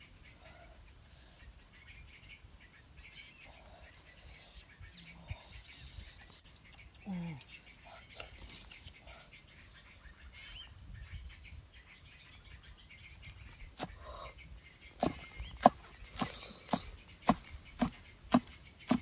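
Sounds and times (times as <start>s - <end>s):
faint birds chirping: 0.0s - 19.0s
cleaver chopping on wooden block: 15.0s - 19.0s.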